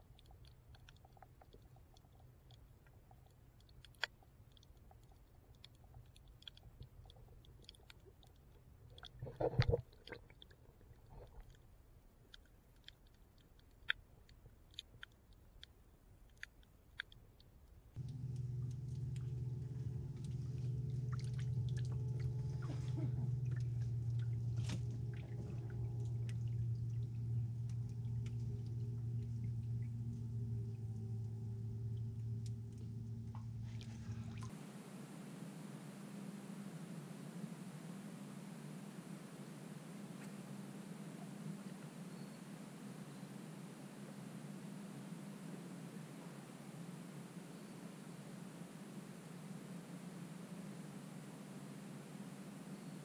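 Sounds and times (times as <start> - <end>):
underwater crackling clicks: 0.0 - 19.5
steady hum with held tones: 0.0 - 53.0.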